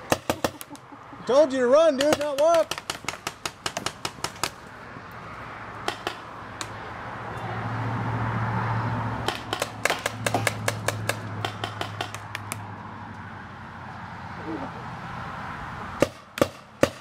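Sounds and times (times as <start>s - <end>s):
paintball markers firing: 1.9s - 4.6s, 9.2s - 12.6s.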